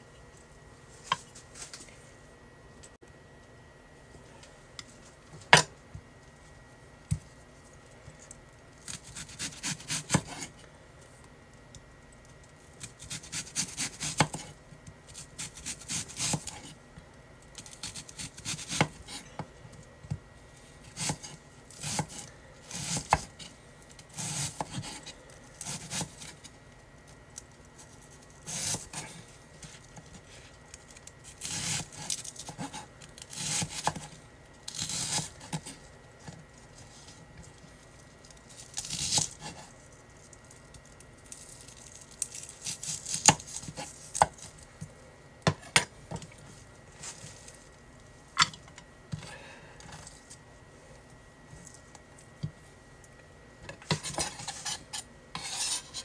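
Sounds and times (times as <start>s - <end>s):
knife slicing onion: 8.8s - 10.6s, 12.8s - 16.8s, 17.6s - 19.5s, 20.8s - 26.5s, 27.8s - 30.4s, 31.2s - 35.8s, 38.6s - 39.8s, 42.3s - 44.6s, 53.8s - 56.0s.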